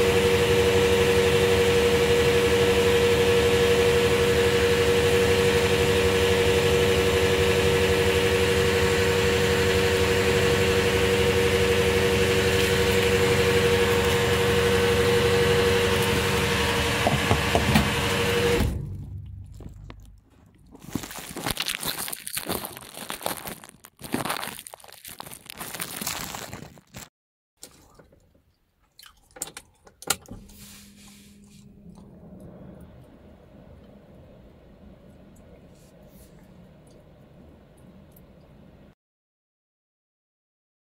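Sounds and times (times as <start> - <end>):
fuel pump humming: 0.0 - 21.2, 29.3 - 38.9.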